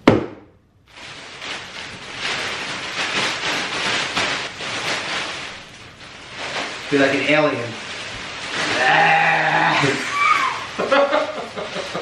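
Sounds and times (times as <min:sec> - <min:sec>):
sharp knock: 0:00.0 - 0:00.5
plastic packing crinkling and rustling: 0:00.8 - 0:12.0.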